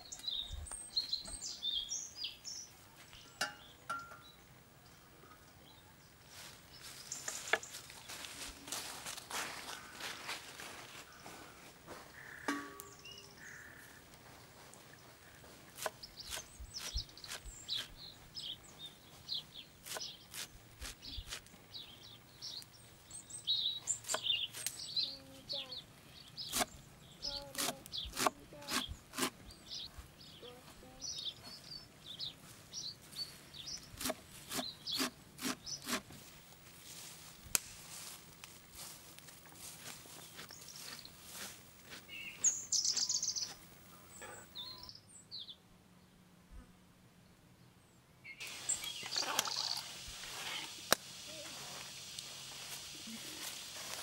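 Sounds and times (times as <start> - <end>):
birds chirping: 0.0 - 36.6, 38.0 - 46.1, 47.8 - 54.0
knife chopping on wooden board: 27.5 - 29.3.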